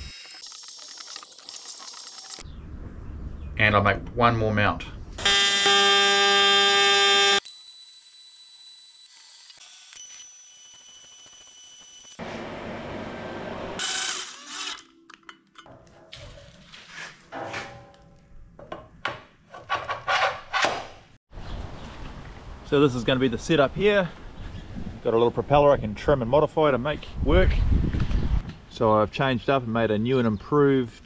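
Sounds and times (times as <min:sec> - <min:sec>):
welder buzzing: 0:00.0 - 0:02.4, 0:05.2 - 0:14.9
workshop hum: 0:05.1 - 0:21.2
metal knocks and clatter: 0:17.3 - 0:20.9.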